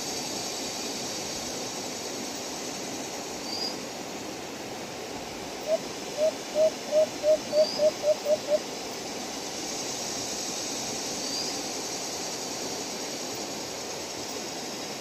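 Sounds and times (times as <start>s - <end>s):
background hiss: 0.0s - 15.0s
dove hooting: 5.6s - 8.6s.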